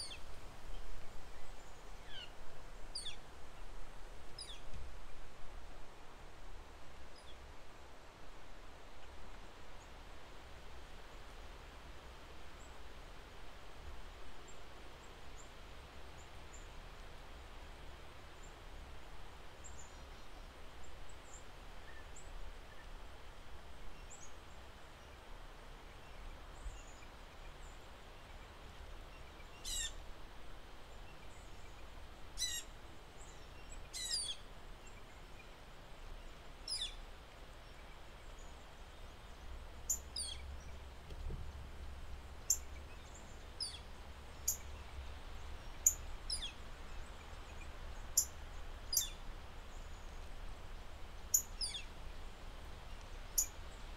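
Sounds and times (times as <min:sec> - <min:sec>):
wind: 0:00.0 - 0:53.9
small birds chirping: 0:30.9 - 0:41.3, 0:42.4 - 0:52.0, 0:52.8 - 0:53.9.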